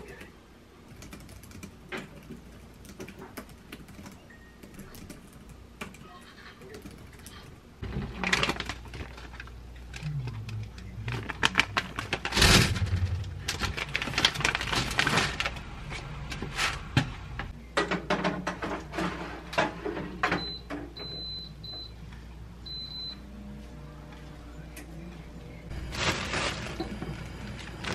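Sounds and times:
paper rustling and crinkling: 7.8 - 16.9, 25.7 - 27.9.

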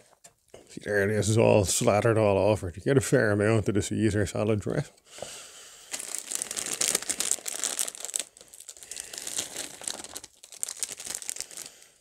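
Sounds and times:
plastic packet crinkling: 5.9 - 12.0.

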